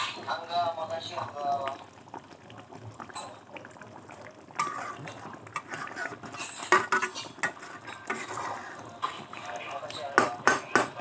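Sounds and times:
sauce bubbling in a pan: 0:00.0 - 0:11.0.

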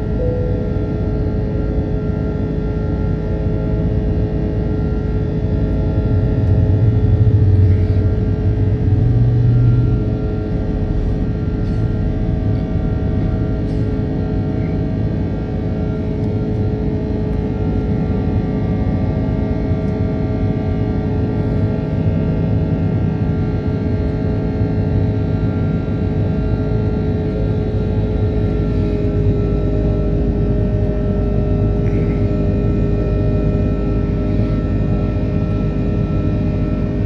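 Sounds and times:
jet engine cabin rumble: 0:00.0 - 0:37.0
steady whining tones: 0:00.0 - 0:37.0.

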